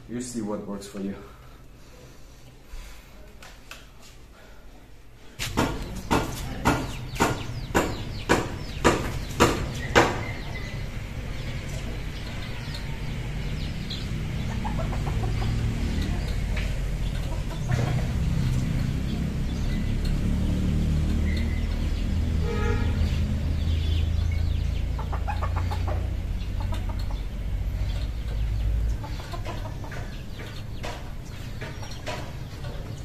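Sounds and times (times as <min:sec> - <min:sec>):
outdoor background noise: 0:00.0 - 0:33.0
chicken clucking: 0:11.6 - 0:19.0, 0:24.5 - 0:33.0.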